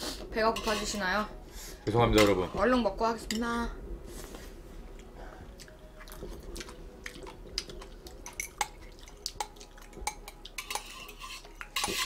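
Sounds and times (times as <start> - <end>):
wet chewing: 5.0 - 10.6.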